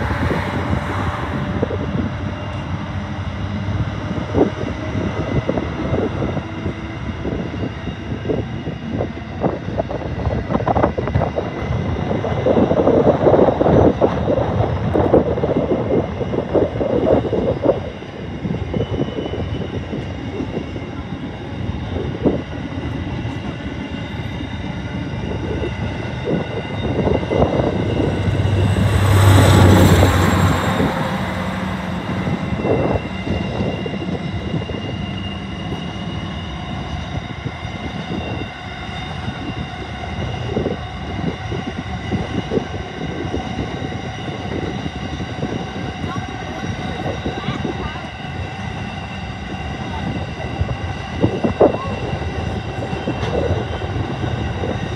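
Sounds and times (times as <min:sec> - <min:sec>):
loud rush of train: 0:00.0 - 0:54.9
freight train wheels clattering: 0:10.5 - 0:39.6.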